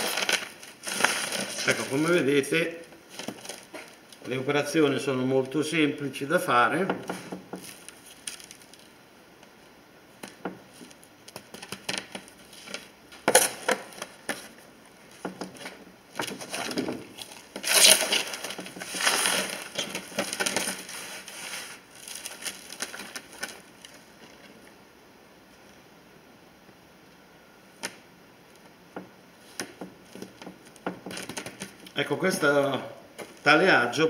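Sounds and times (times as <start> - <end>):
soil rustling and scraping: 0.0 - 4.3, 16.3 - 24.6.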